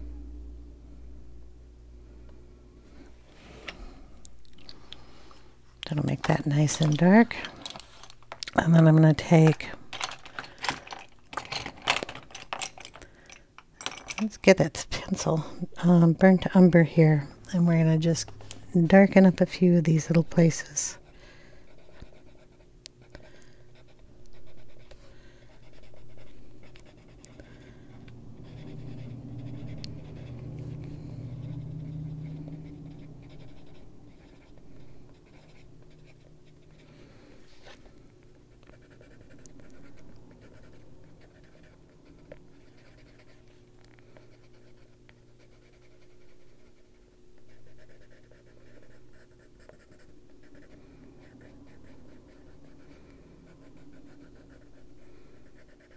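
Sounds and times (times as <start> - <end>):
faint steady hum: 0.0 - 55.9
pencil scratching on paper: 21.7 - 23.2, 28.4 - 36.9, 38.6 - 43.5, 44.3 - 55.9.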